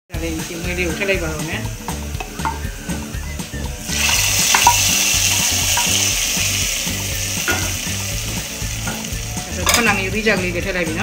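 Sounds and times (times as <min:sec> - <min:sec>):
hot oil sizzling in curry: 0:00.1 - 0:11.0
wooden spatula clicking on pan: 0:04.1 - 0:06.0.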